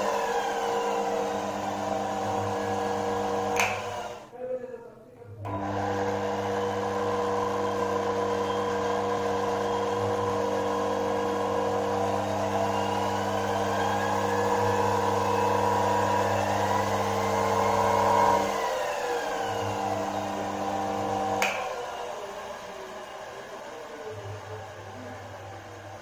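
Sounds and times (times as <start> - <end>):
motor generator electric hum: 5.5 - 21.9.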